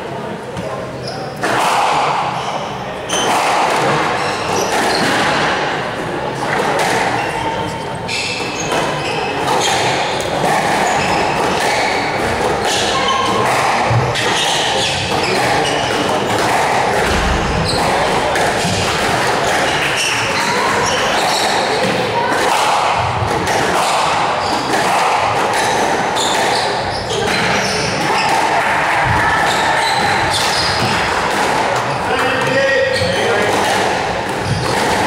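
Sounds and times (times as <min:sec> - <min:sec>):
spectators murmuring: 0:00.0 - 0:35.0
squash ball hits: 0:13.4 - 0:26.5, 0:33.4 - 0:35.0.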